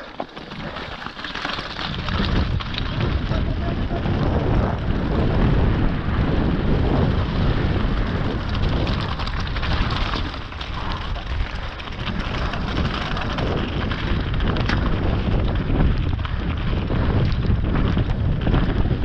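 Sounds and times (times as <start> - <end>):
bike tyres crunching over stones: 0.0 - 19.0
wind buffeting microphone: 0.6 - 19.0.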